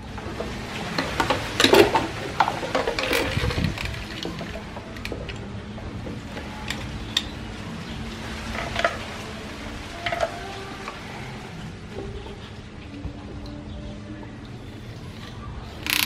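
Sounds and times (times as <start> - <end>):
low background noise: 0.0 - 16.0
toy fishing rod clicks and taps: 15.8 - 16.0.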